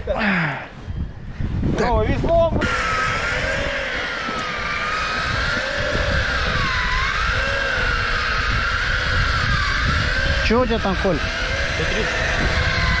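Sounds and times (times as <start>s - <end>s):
low wind: 0.0s - 13.0s
fishing reel motor whining: 2.6s - 13.0s
water noise: 2.6s - 13.0s.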